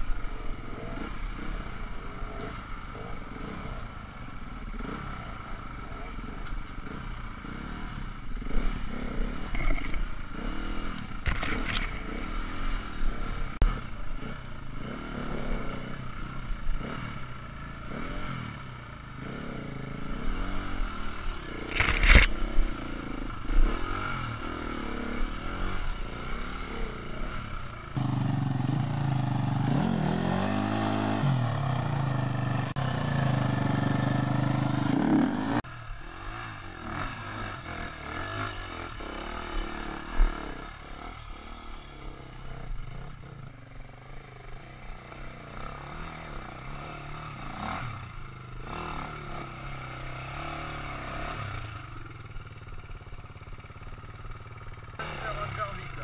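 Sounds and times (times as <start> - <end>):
dirt bike engine revving: 0.0 - 56.0
loud dirt bike engine revving hard: 0.0 - 56.0.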